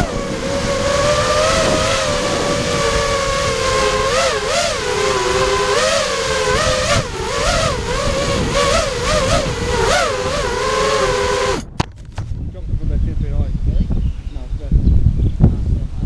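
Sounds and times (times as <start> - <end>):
quadcopter motors whining: 0.0 - 11.9.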